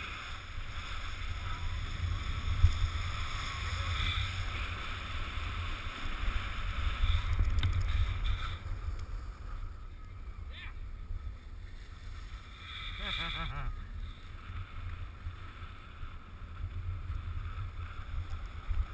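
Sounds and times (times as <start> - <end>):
wind buffeting microphone: 0.0 - 12.6
skis hissing over snow: 0.0 - 18.9.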